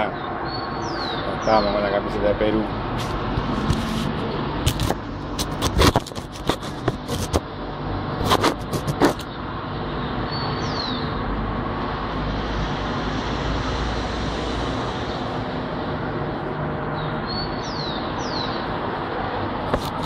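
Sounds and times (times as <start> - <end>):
street traffic noise: 0.0 - 20.0
high falling bird chirps: 0.2 - 1.8, 10.0 - 11.2, 16.9 - 18.7.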